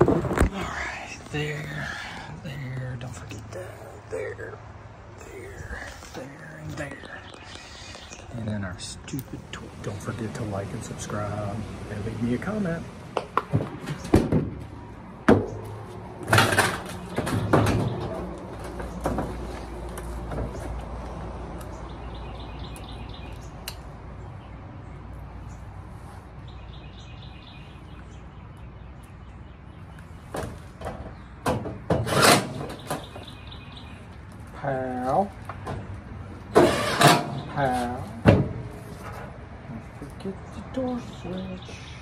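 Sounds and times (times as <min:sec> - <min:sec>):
bird chirping: 0:00.6 - 0:10.6, 0:21.6 - 0:25.8, 0:26.4 - 0:31.4, 0:32.6 - 0:34.6, 0:39.7 - 0:42.0.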